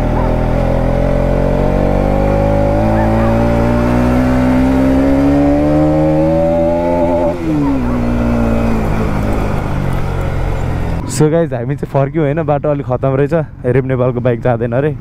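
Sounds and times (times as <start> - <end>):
motorcycle engine revving: 0.0 - 11.2.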